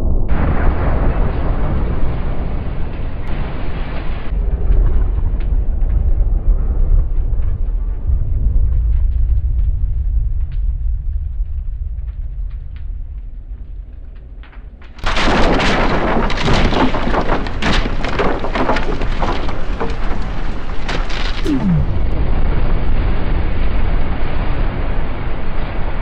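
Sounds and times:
large explosion blast: 0.0 - 4.4, 21.3 - 24.4
debris cracking: 14.5 - 22.2
steady rumble: 21.3 - 22.8.

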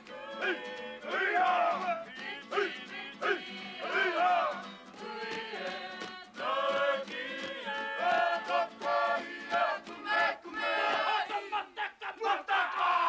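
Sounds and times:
men chanting in unison: 0.2 - 4.6, 6.4 - 13.0.

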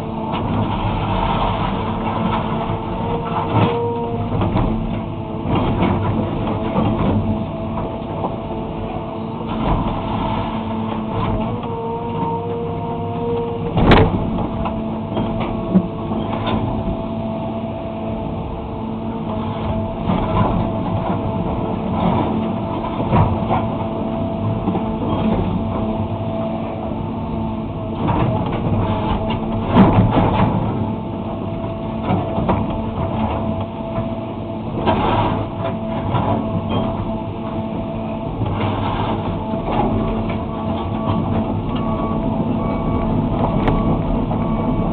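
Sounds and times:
excavator diesel engine: 0.0 - 44.9
bucket scraping and crunching asphalt: 9.8 - 11.4.

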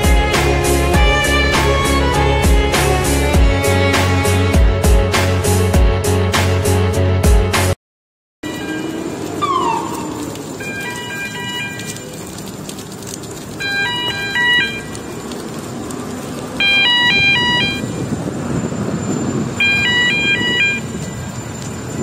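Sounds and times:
crane warning alarm beeping tune: 8.4 - 12.0, 13.6 - 14.9, 16.6 - 18.0, 18.6 - 22.0.

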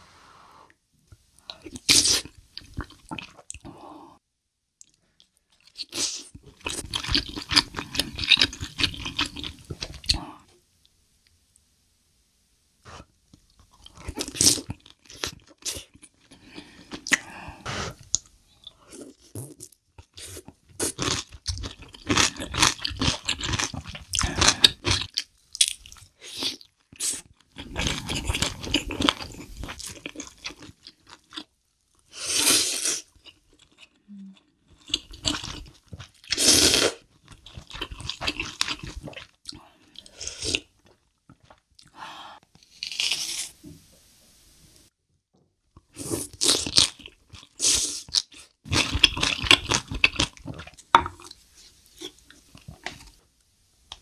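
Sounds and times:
wet chewing and crunching: 4.8 - 10.2, 18.9 - 32.0, 34.7 - 41.9, 45.8 - 53.2.

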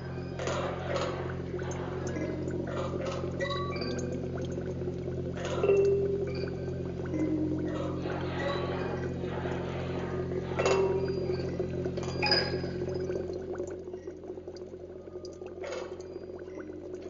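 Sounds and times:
glassy clinking strikes: 0.0 - 4.6, 5.4 - 13.3
steady low hum: 0.0 - 17.0.

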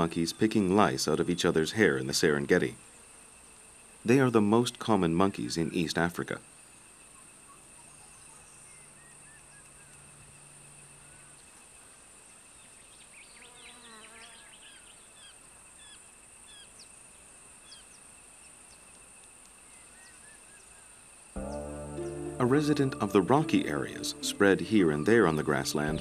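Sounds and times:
insects shrilling: 0.0 - 26.0
bird chirps: 7.1 - 10.2, 19.6 - 26.0.

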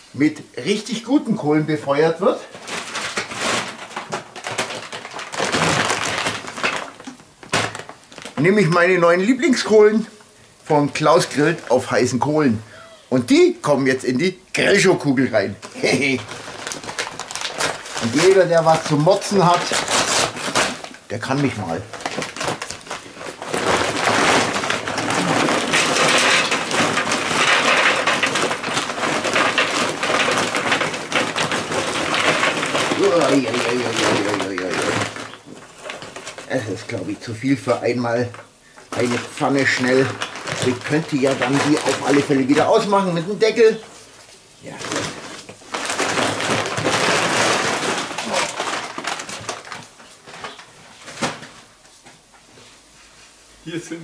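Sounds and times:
paper sack crackling rustle: 0.7 - 12.6, 13.3 - 54.0
briquettes clattering into metal: 15.7 - 43.8.

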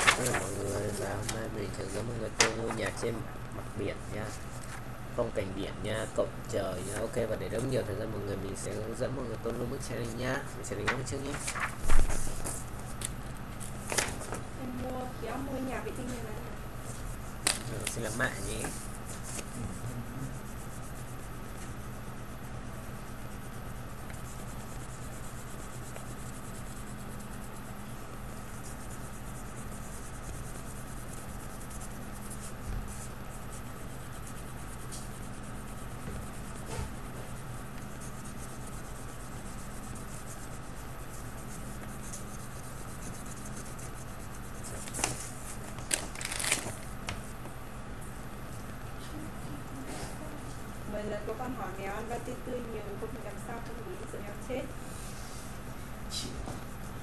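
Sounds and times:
steady electrical hum: 0.0 - 57.0
pen scratching on paper: 16.8 - 46.0.

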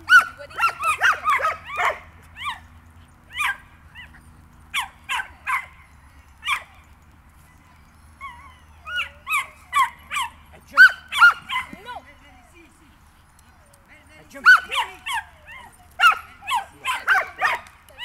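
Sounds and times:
small dog yapping: 0.1 - 2.6, 3.3 - 5.8, 6.4 - 6.7, 8.2 - 12.0, 14.4 - 18.0.

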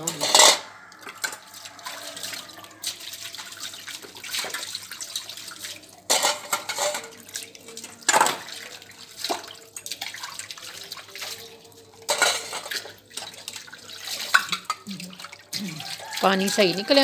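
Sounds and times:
steel dishes clinking: 0.0 - 1.7, 6.1 - 7.2, 12.0 - 12.8
loud splashes or clatters: 0.0 - 11.4, 12.0 - 17.0
water splashing over metal pots: 0.0 - 17.0.

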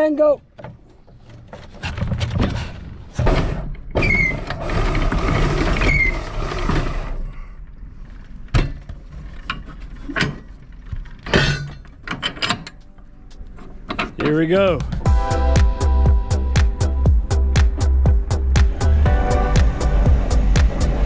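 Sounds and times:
anchor windlass hauling chain: 0.6 - 7.2, 7.8 - 15.0
windlass squeals: 3.9 - 6.6.

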